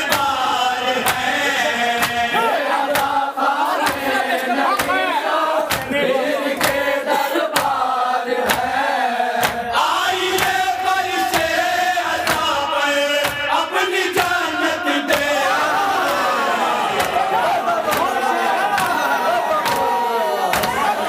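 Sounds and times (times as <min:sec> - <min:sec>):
men chanting in unison: 0:00.0 - 0:21.0
hand slaps on chest: 0:05.7 - 0:05.9, 0:07.6 - 0:07.8.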